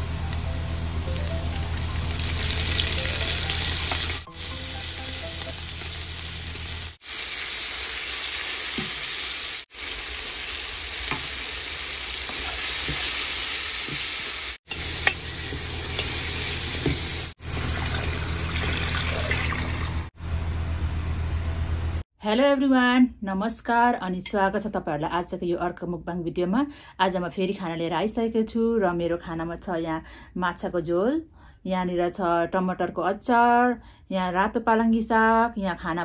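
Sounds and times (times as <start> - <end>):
food sizzling in hot oil: 0.0 - 20.1.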